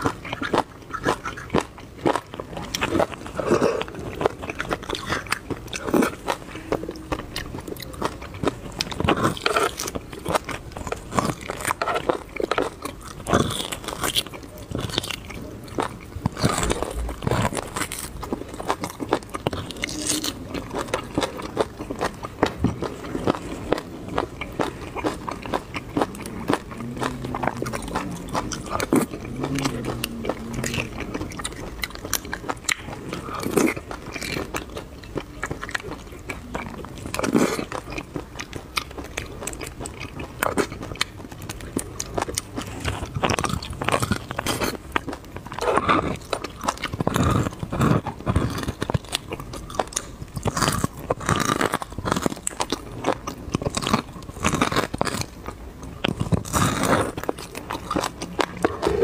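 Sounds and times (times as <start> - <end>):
wet chewing and mouth sounds: 0.0 - 59.0
sucking marrow from bone: 56.0 - 59.0.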